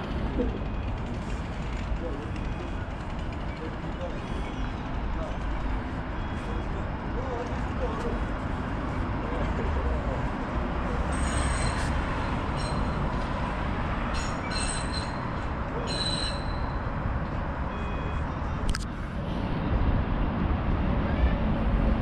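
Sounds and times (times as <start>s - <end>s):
brief beeps: 6.1s - 6.8s, 17.7s - 18.8s
rail wheels squealing: 11.0s - 13.3s, 14.0s - 16.9s.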